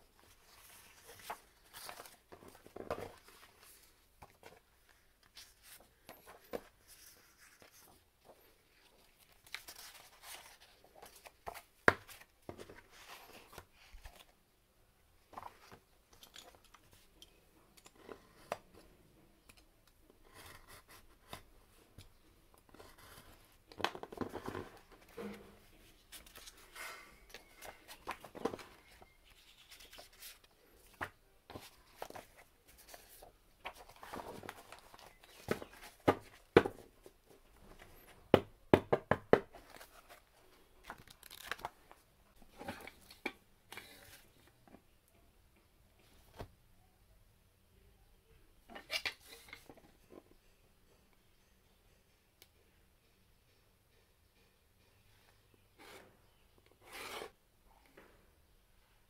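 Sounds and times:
paper and card rustling: 0.2 - 14.3, 25.9 - 36.8.

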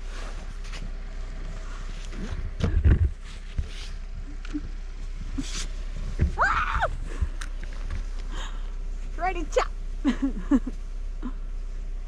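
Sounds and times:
low thuds: 2.1 - 8.4.

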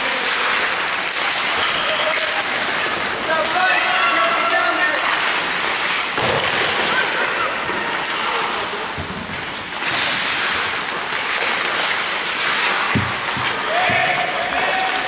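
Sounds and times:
skate blades scraping ice: 0.0 - 15.0.

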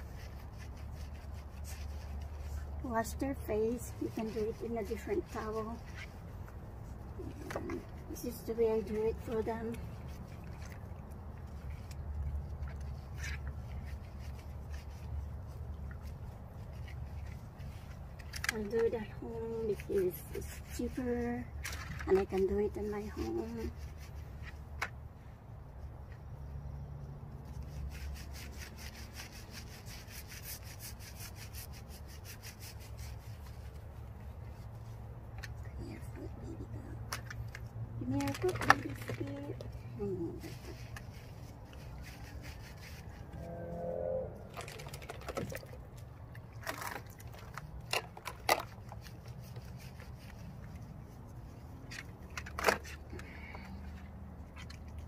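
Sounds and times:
hands scrubbing wet dog's coat: 0.0 - 43.4, 44.5 - 53.1
small splashes and squelches: 44.5 - 50.4.

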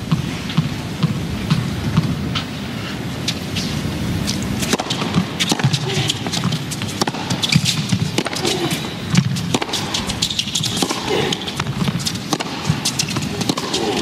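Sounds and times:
arena background noise: 0.0 - 14.0
tennis ball hit by rackets: 4.3 - 14.0.

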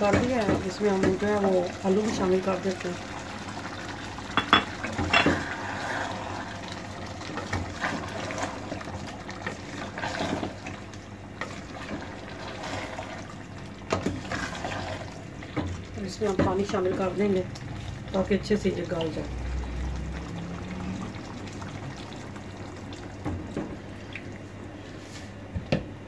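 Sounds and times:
simmering pot hiss: 0.0 - 25.3
knocks against a pot: 4.3 - 5.4
wooden spatula stirring in a pot: 4.7 - 19.5.

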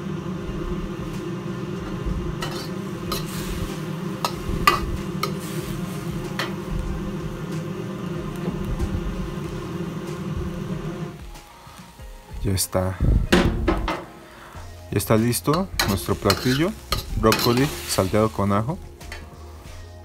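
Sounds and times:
gas burner rushing: 0.0 - 19.9
light sizzling: 0.0 - 20.0
ladle scraping and clanking on wok: 1.8 - 6.7, 15.4 - 19.8.

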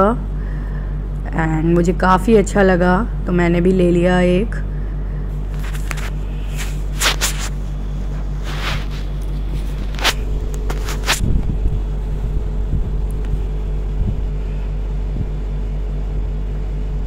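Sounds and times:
steady low hum: 0.0 - 17.0
handling clicks and rustles: 5.5 - 11.3.

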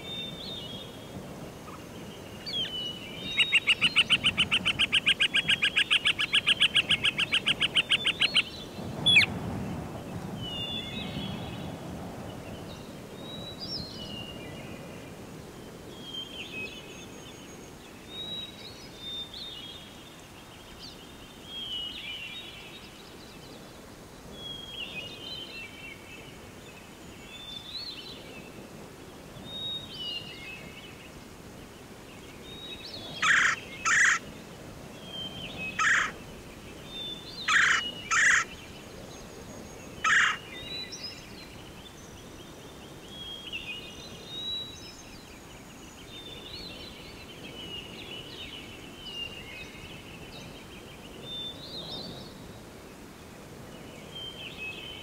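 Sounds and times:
rapid pulsed bird call: 2.4 - 9.3, 33.0 - 34.3, 35.2 - 36.2, 37.0 - 38.7
harsh bird calls: 2.5 - 9.3, 33.0 - 34.3, 35.2 - 36.2, 37.1 - 38.6, 39.9 - 40.8.

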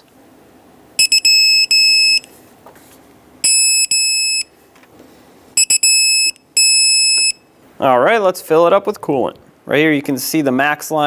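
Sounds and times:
torque wrench electronic beeps: 1.0 - 2.3, 3.4 - 4.5, 5.6 - 7.4.

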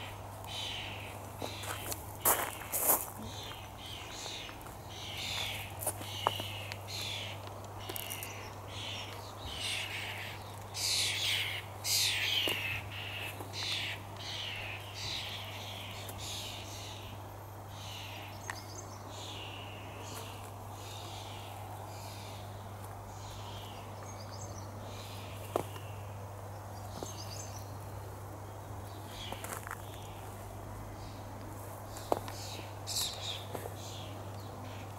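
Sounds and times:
steady low hum: 0.0 - 34.9
footsteps on grass: 0.3 - 8.3, 28.8 - 30.6, 31.4 - 33.9.

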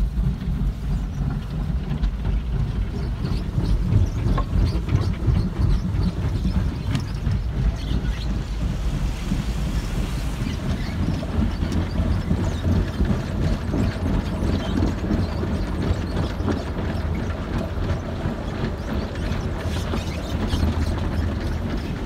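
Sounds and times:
car wash machinery rumble: 0.0 - 22.0
water spraying over car: 6.8 - 13.0.

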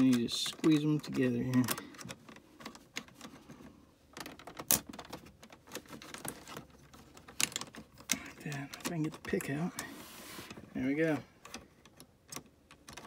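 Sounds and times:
small plastic clicks: 11.4 - 13.0.

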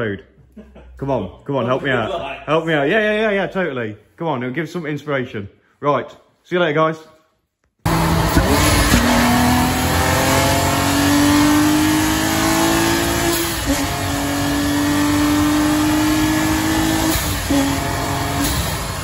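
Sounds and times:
car engine accelerating: 7.9 - 19.0.

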